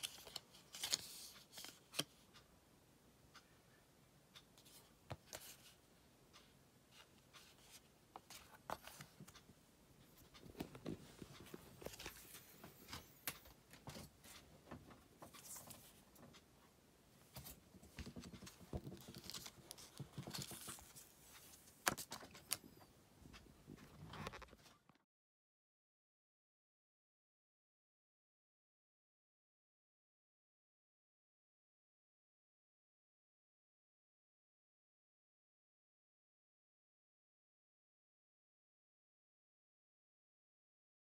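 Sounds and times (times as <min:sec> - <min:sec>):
paper and cardboard rustling: 0:00.0 - 0:02.1, 0:10.4 - 0:14.4, 0:17.3 - 0:22.6
light clicks and taps: 0:17.3 - 0:24.7.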